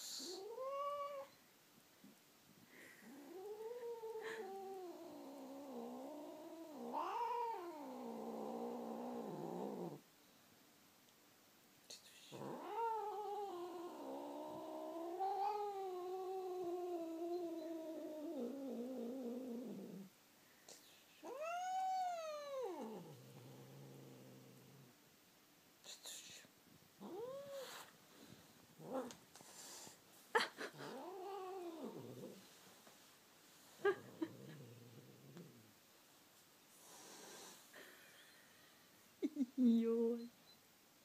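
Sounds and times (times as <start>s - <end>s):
cat yowling: 21.2s - 23.0s.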